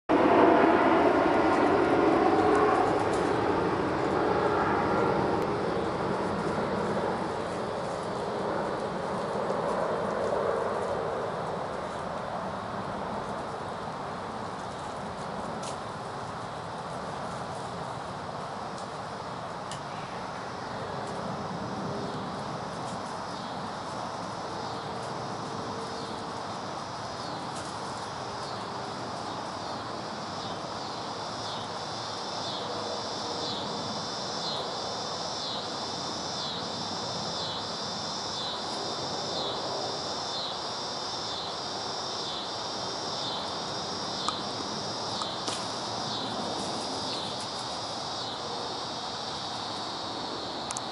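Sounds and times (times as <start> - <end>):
insects calling: 0.1 - 50.9
background hiss: 22.0 - 50.9.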